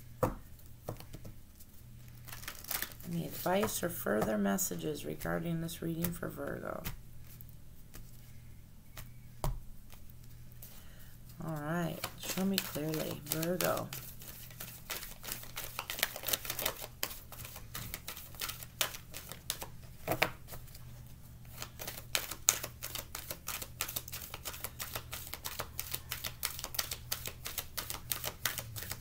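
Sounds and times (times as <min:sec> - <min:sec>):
cards being shuffled: 0:00.9 - 0:04.3, 0:11.3 - 0:20.8, 0:21.4 - 0:29.0.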